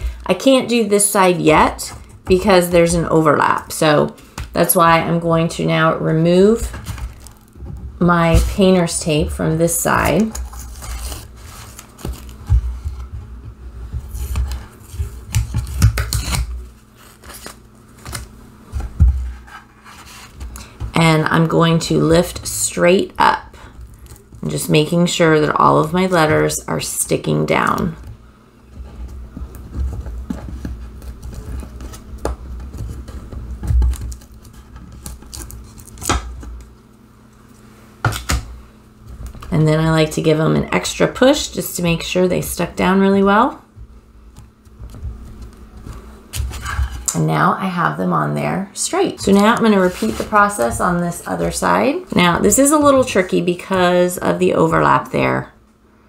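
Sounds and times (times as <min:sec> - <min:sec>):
tape peeling and crumpling: 0:10.0 - 0:13.0, 0:14.0 - 0:18.3, 0:29.4 - 0:36.7.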